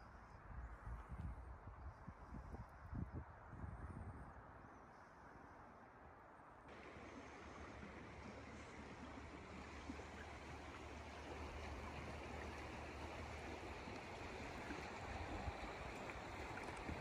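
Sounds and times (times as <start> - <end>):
stream water rushing: 6.7 - 17.0.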